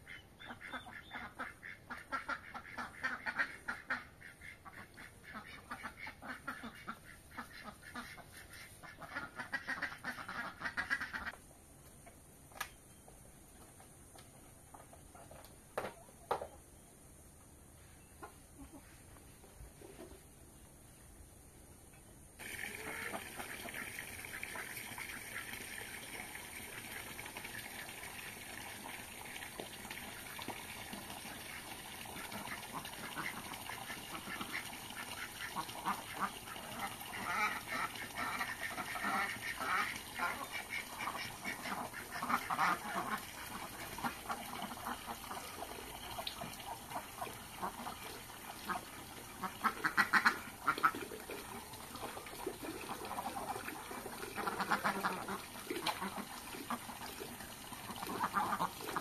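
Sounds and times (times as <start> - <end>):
ducks quacking: 0.0 - 11.4, 22.4 - 26.4, 31.2 - 57.2, 57.8 - 59.0
water running from a pipe: 22.4 - 59.0.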